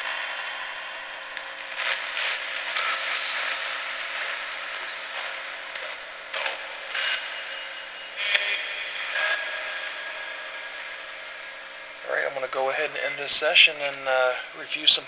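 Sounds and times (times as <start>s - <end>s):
brief radio sound snatches: 0.0s - 9.5s
radio static hiss chopped: 0.0s - 15.0s.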